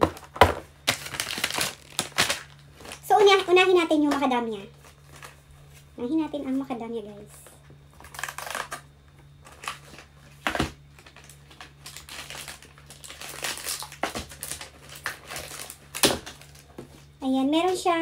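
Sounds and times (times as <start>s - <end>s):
sharp paper crackle: 0.0s - 3.6s, 8.0s - 16.8s
cardboard and paper crinkling: 0.0s - 6.7s, 8.0s - 8.8s, 9.4s - 17.1s.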